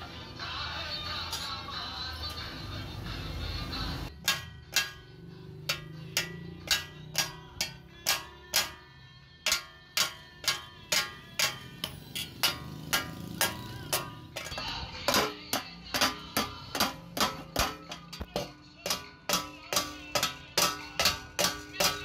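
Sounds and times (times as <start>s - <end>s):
hammer striking steel: 4.1s - 22.0s.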